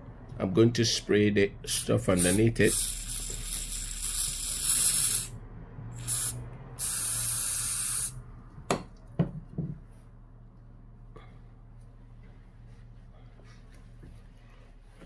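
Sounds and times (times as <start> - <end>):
aerosol can hissing: 2.2 - 5.3, 6.0 - 8.2.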